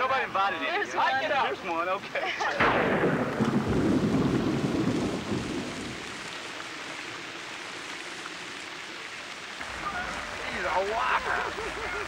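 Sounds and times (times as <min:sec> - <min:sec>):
rain hissing: 0:00.0 - 0:12.0
thunder rumbling: 0:02.6 - 0:06.5.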